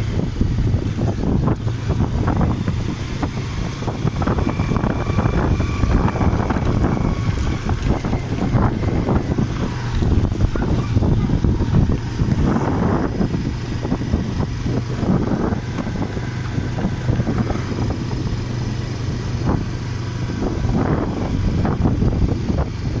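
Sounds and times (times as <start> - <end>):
motorcycle engine running: 0.0 - 23.0.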